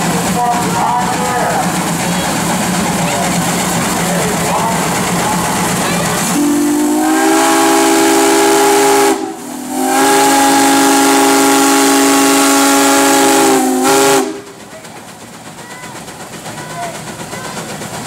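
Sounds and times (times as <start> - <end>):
steam hissing: 0.0 - 18.0
steam whistle blasts: 6.2 - 14.5.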